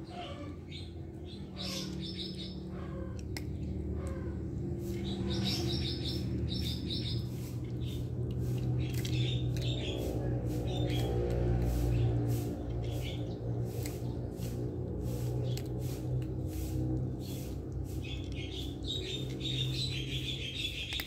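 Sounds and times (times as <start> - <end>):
small birds chirping: 0.0 - 21.0
steady low hum: 0.0 - 21.0
cat crunching dry kibble: 3.1 - 5.2, 6.2 - 21.0.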